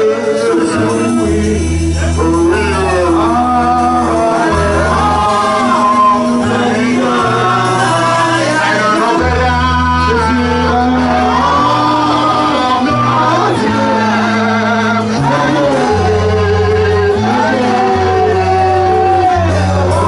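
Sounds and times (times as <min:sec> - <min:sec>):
bass guitar long notes: 0:00.0 - 0:20.0
electric keyboard: 0:00.0 - 0:20.0
man singing into a microphone: 0:00.0 - 0:20.0.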